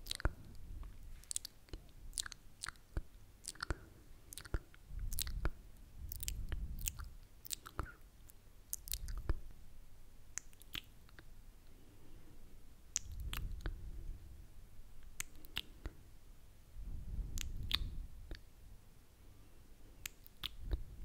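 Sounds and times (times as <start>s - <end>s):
wet mouth clicks and smacks: 0.0s - 0.6s, 1.2s - 9.4s, 10.3s - 11.3s, 12.9s - 13.8s, 15.0s - 16.0s, 17.3s - 18.5s, 20.0s - 20.8s
low muffled rumbles: 4.5s - 8.0s, 12.4s - 15.2s, 15.8s - 18.8s.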